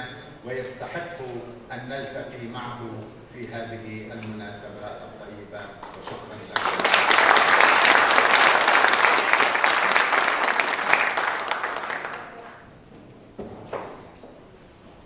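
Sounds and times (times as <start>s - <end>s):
audience applauding: 6.5s - 12.7s.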